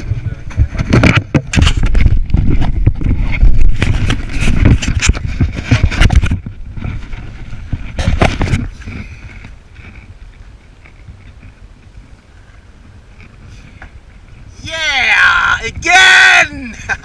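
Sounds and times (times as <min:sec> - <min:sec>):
knocks and thumps on camera: 0:00.4 - 0:08.8.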